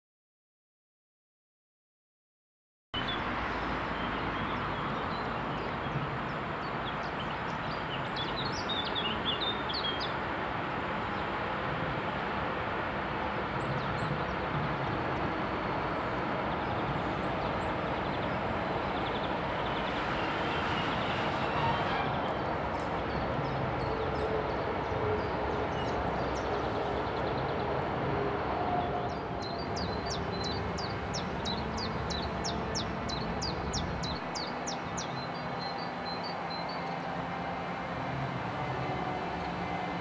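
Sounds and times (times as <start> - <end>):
distant freight train rolling: 10.2 - 40.0
birds chirping: 13.6 - 37.8.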